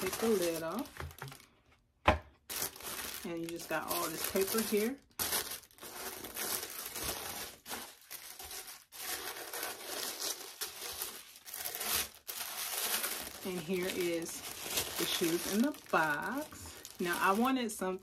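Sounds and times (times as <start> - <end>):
tissue paper rustling: 0.0 - 1.5, 2.5 - 18.0.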